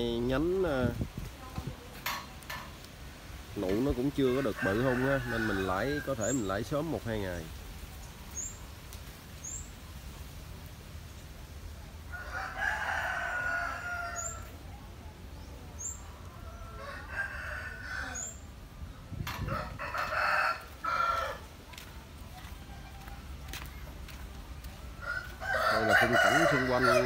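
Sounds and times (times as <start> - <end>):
roosters crowing: 3.6 - 7.4, 12.0 - 14.7, 15.8 - 21.6, 25.0 - 27.0.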